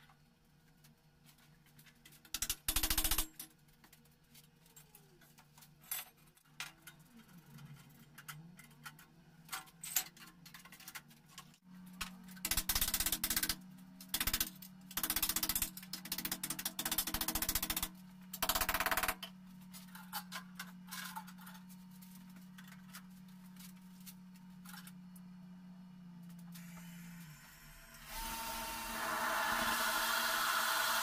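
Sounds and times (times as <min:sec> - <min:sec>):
steady motor hum: 0:19.3 - 0:31.0.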